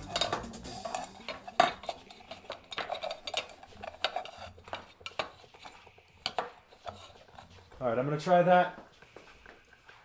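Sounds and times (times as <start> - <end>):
metal can clinking and scraping: 0.0 - 7.7.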